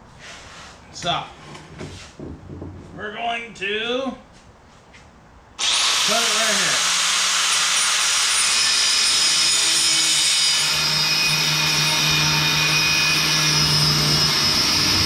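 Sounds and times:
grinder cutting metal tubing: 0:05.6 - 0:15.0.

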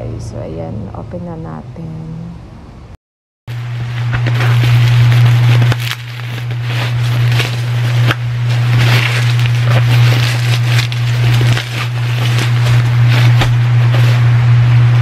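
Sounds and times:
steady low hum: 0:00.0 - 0:15.0
plastic packaging crinkling: 0:03.5 - 0:14.3.

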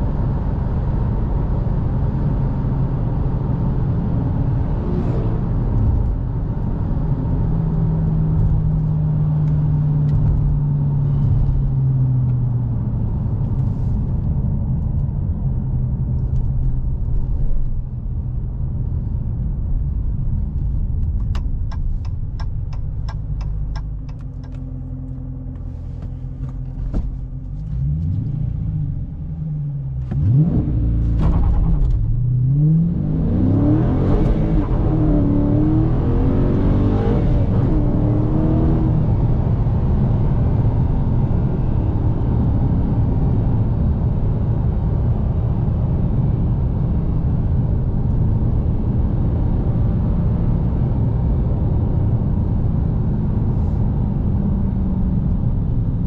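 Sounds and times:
car engine rumbling: 0:00.0 - 0:56.0
turn signal ticking: 0:21.0 - 0:24.7.

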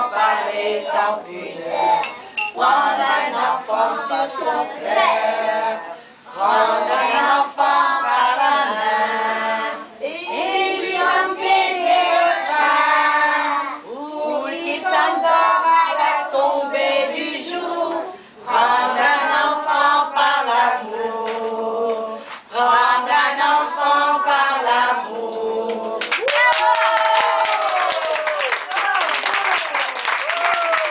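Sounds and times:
children singing together: 0:00.0 - 0:26.1.

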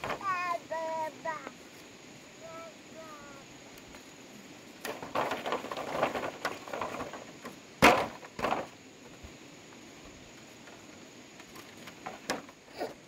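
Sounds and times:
rustling and crackling: 0:03.0 - 0:13.0.

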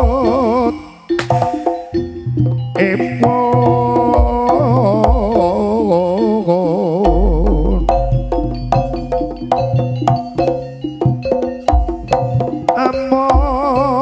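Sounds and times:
ringing pitched percussion: 0:00.0 - 0:05.5, 0:07.0 - 0:13.7
wavering melody with vibrato: 0:00.0 - 0:13.3
hand drum strokes: 0:01.2 - 0:02.0.

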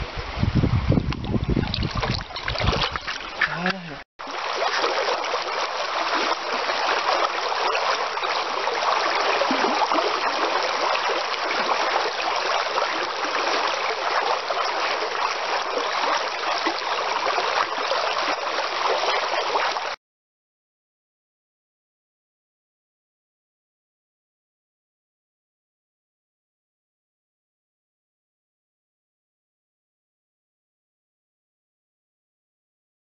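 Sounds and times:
river flowing over stones: 0:01.3 - 0:20.0.

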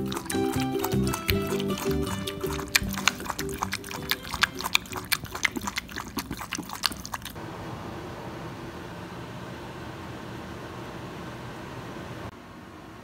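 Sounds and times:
dog lapping water: 0:00.0 - 0:07.4.

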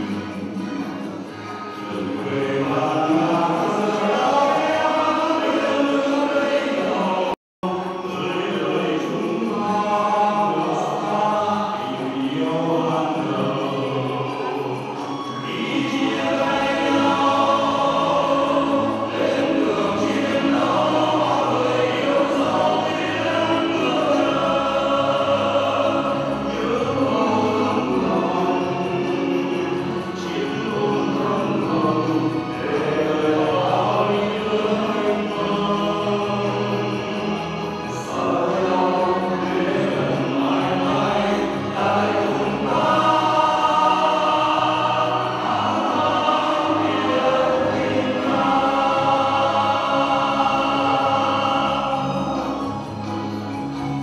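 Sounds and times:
instrumental accompaniment: 0:00.0 - 0:06.6
men singing together: 0:01.8 - 0:54.0.

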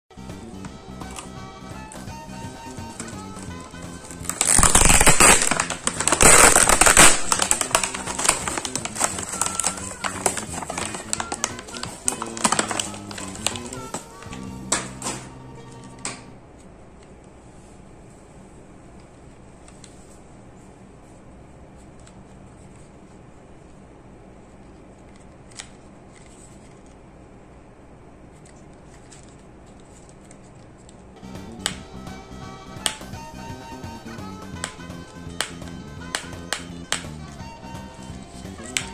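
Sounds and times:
soft background music: 0:00.1 - 0:16.4, 0:31.2 - 0:38.9
plastic packaging crackling: 0:02.8 - 0:15.3
plastic toy rubbing and ticks: 0:02.9 - 0:14.4
plastic bag rustling: 0:04.0 - 0:15.3
sharp plastic click: 0:34.4 - 0:37.2.

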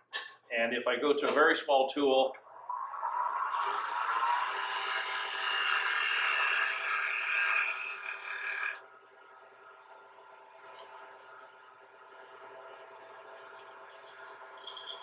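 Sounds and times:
chisel cutting wood on lathe: 0:03.5 - 0:08.8, 0:12.1 - 0:15.0
lathe running hum: 0:03.5 - 0:08.8, 0:12.1 - 0:15.0.

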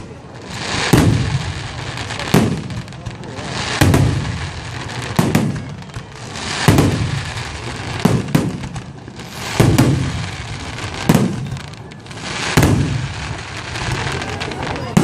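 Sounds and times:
crackling hiss of fireworks: 0:00.0 - 0:15.0
fireworks booming: 0:00.0 - 0:15.0.

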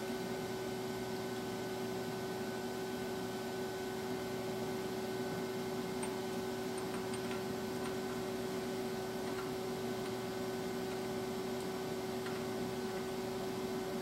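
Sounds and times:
electric machine hum: 0:00.0 - 0:14.0.

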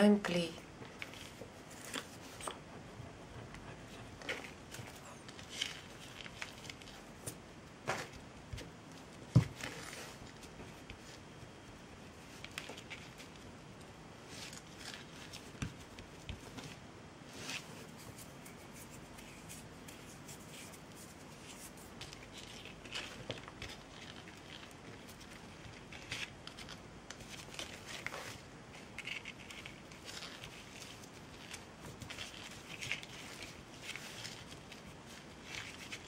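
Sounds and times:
hands handling twine: 0:00.8 - 0:02.8, 0:12.1 - 0:36.0.

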